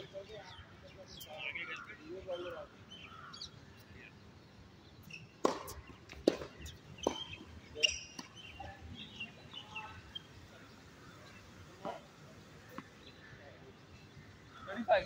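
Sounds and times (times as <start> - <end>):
faint birds chirping: 0.0 - 15.0
tennis ball pops: 5.4 - 7.4.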